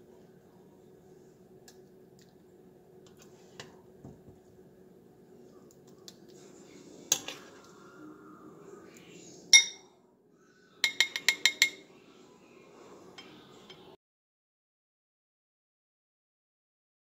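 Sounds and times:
spoon clinking on glass: 9.5 - 9.9, 10.8 - 11.8
spoon tapping glass rim: 9.6 - 9.9, 10.8 - 11.8.

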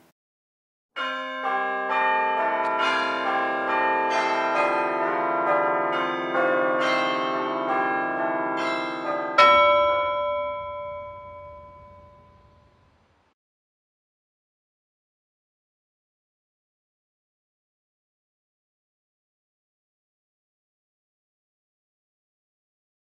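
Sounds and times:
bells ringing: 1.0 - 13.0.

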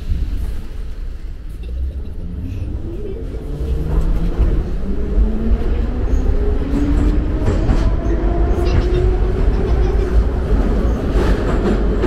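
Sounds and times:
train running rumble: 0.0 - 12.0.

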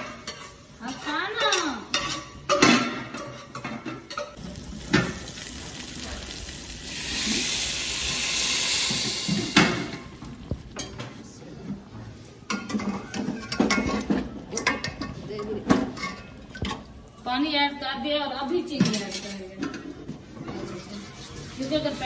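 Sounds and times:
metal pots and lid clanking: 0.0 - 6.2, 12.5 - 16.9
water hissing in hot pot: 4.4 - 10.6.

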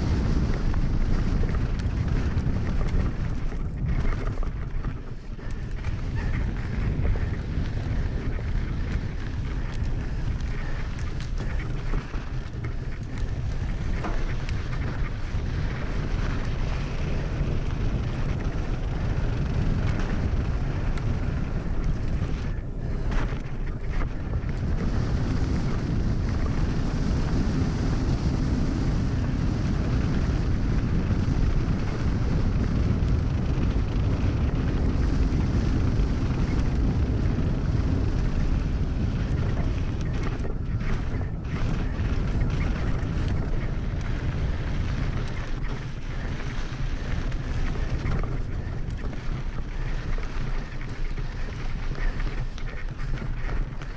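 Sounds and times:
tyres rolling over gravel: 0.0 - 27.6, 32.2 - 53.9
wind rushing over microphone: 0.0 - 53.9.

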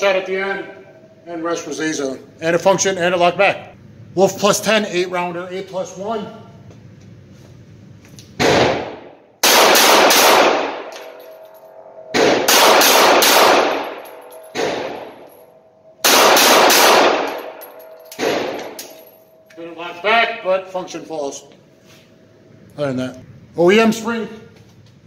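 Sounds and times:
pistol shots echoing indoors: 8.4 - 19.5.

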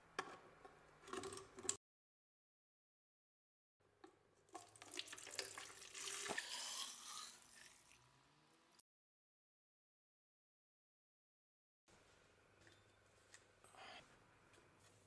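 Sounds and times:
liquid pouring into plastic cup: 4.5 - 8.1.

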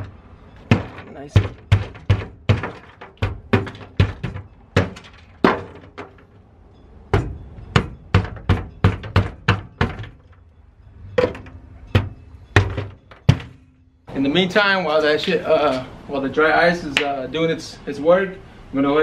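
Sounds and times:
hammer knocking on sheet metal: 0.6 - 6.1, 7.1 - 10.3, 11.2 - 13.6.

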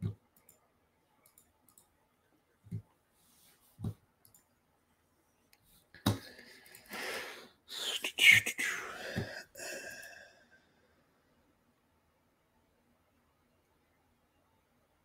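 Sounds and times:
man's wordless vocal sounds: 7.7 - 10.2.

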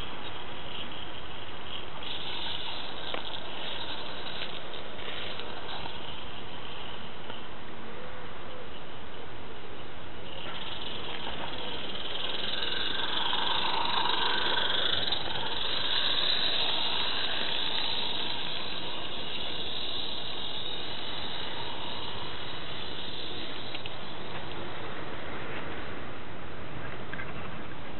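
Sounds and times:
steam hissing: 2.0 - 7.0, 10.4 - 24.6
steam locomotive running past: 10.3 - 25.8.

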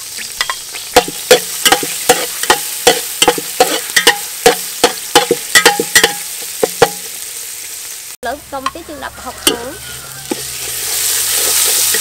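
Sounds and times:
oil sizzling: 0.0 - 12.0
metal spatula scraping a pot: 0.4 - 7.0, 9.4 - 12.0.

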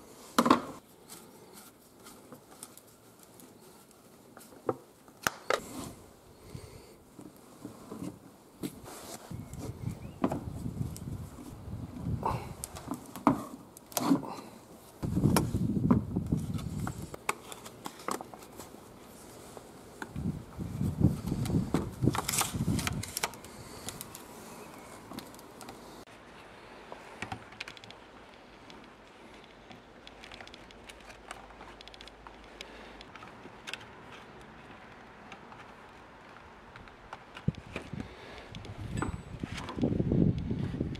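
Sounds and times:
hands handling wooden box: 0.3 - 6.0, 12.3 - 26.0
plastic wrapping rustling: 0.8 - 5.8, 12.6 - 26.0
clicks and knocks of wooden parts: 26.9 - 40.9.

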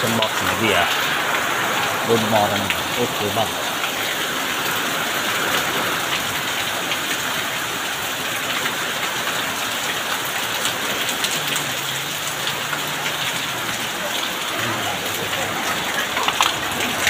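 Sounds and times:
rain on roofs and pavement: 0.0 - 17.0.

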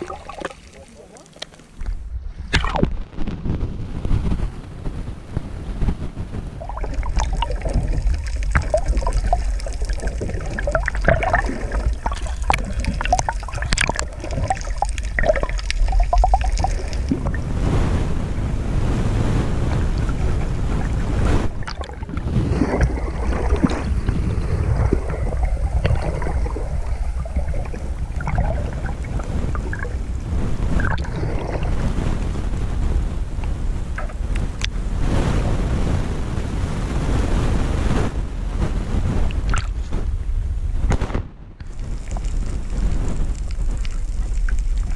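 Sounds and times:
small underwater clicks: 0.0 - 3.0, 6.6 - 17.4, 21.6 - 24.2, 24.8 - 30.0, 33.4 - 34.8, 39.4 - 39.8, 41.6 - 44.9
muffled underwater rumble: 0.0 - 44.9.

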